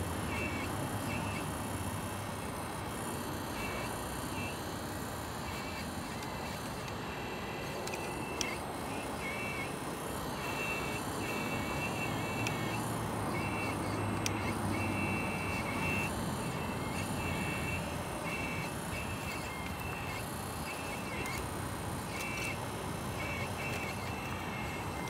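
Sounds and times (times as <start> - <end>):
model excavator mechanical noise: 0.0 - 25.0
high-pitched beeps: 5.4 - 25.0.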